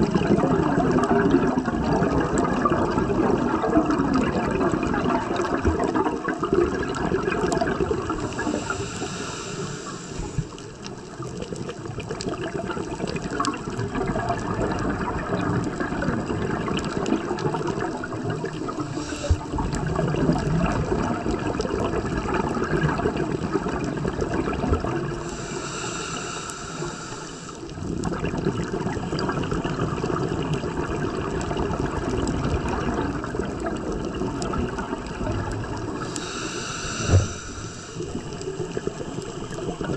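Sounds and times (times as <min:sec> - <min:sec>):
diver breathing bubbles: 0:00.0 - 0:39.9
high hiss: 0:08.2 - 0:10.7, 0:18.7 - 0:19.7, 0:25.2 - 0:27.7, 0:36.0 - 0:39.4.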